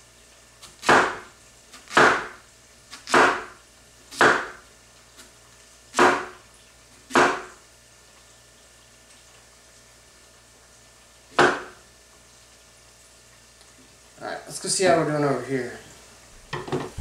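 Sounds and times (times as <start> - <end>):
knife chopping on wooden board: 0.8 - 2.4, 3.0 - 3.5, 4.1 - 4.6, 6.0 - 6.4, 7.1 - 7.5, 11.4 - 11.8.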